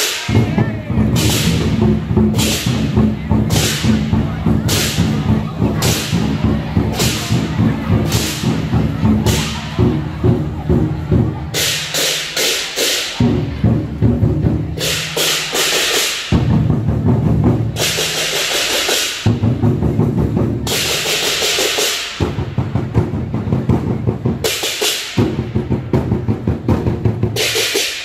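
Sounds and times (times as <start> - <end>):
hand cymbals clashing: 0.0 - 2.9, 11.6 - 13.2, 14.8 - 16.5, 17.8 - 19.3, 20.7 - 22.2
fast drumming: 0.0 - 28.0.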